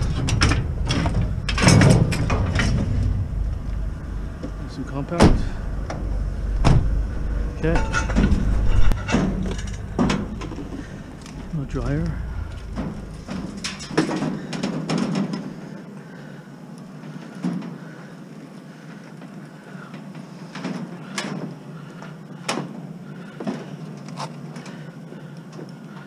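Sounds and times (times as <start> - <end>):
scrap metal knocking and clanking: 0.0 - 6.0, 6.6 - 15.4.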